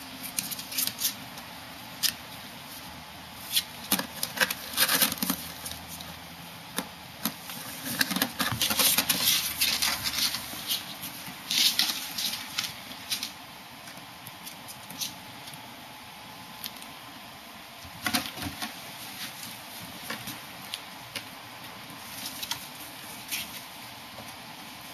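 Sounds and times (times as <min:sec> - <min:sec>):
claws clicking and scratching: 0:00.1 - 0:02.2, 0:03.4 - 0:15.6
cardboard rustling: 0:02.8 - 0:13.4.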